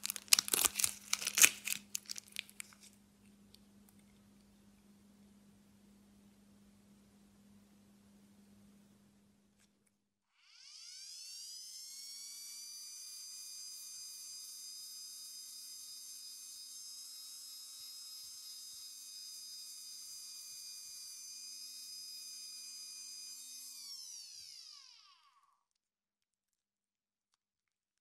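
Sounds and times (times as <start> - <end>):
rotary tool whining: 10.4 - 25.5.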